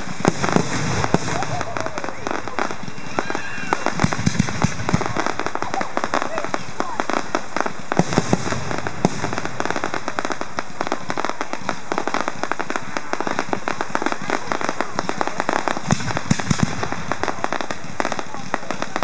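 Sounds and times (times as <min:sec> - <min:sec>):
fireworks booming: 0:00.0 - 0:19.0
fireworks crackling: 0:00.0 - 0:19.0.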